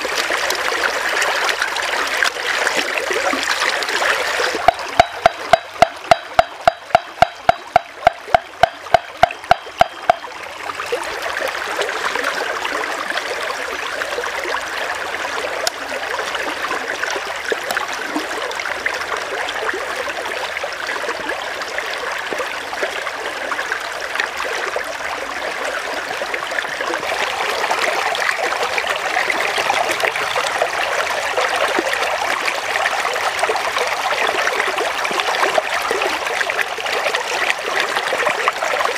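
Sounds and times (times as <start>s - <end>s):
stream running over rocks: 0.0s - 38.9s
rapid sharp ticks: 4.7s - 10.3s.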